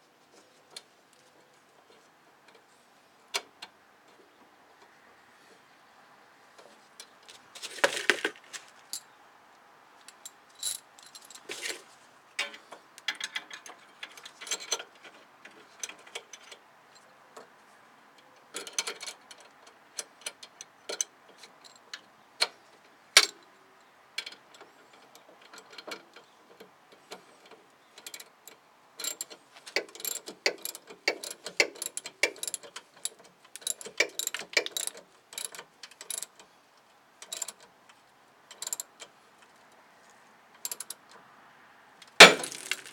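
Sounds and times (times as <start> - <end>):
metal tools clinking: 10.6 - 11.8.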